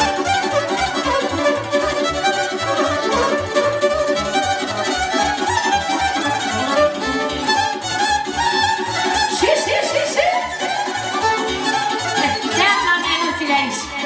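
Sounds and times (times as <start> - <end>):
driving bass beat: 0.0 - 7.8
fiddle playing quick melody: 0.0 - 14.0.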